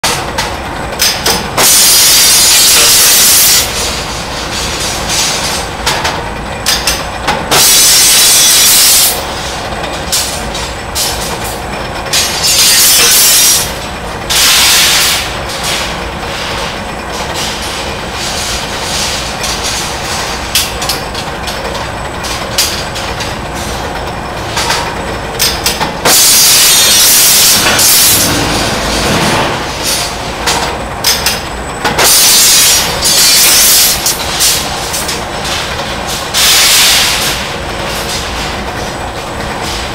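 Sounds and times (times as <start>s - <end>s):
clicks and clanks: 0.0s - 1.8s, 3.8s - 7.8s, 15.5s - 23.4s, 24.5s - 26.3s, 27.0s - 39.0s
loud hissing blasts: 14.3s - 15.4s, 36.3s - 37.4s
machine mechanical din: 17.2s - 37.5s.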